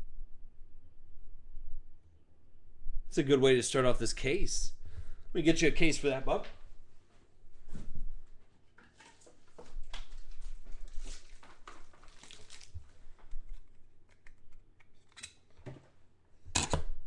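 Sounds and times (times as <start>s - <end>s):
rustling: 6.4s - 16.0s.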